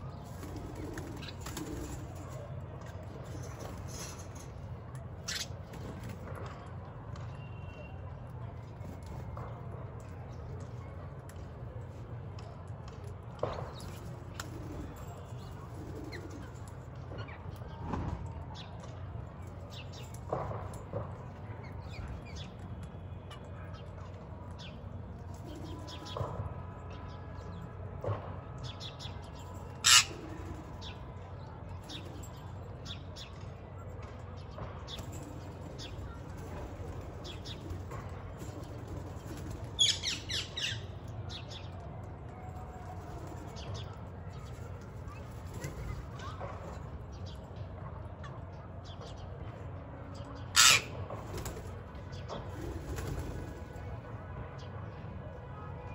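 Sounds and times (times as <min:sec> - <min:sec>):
parakeets calling: 0:29.8 - 0:30.2, 0:50.6 - 0:50.9.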